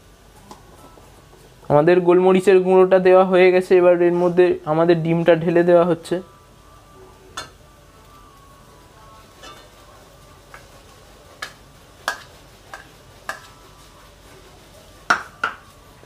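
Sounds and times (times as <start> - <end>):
faint steady hiss: 0.0 - 16.0
taps and clinks on metal pan: 9.4 - 9.7, 11.4 - 13.5, 15.1 - 15.7.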